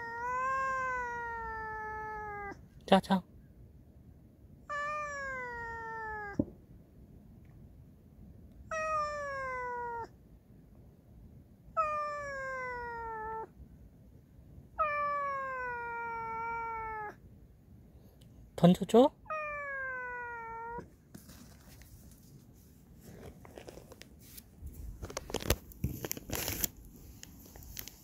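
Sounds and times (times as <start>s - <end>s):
cat meowing: 0.0s - 2.6s, 4.6s - 6.5s, 8.6s - 10.2s, 11.7s - 13.5s, 14.7s - 17.2s, 19.2s - 20.9s.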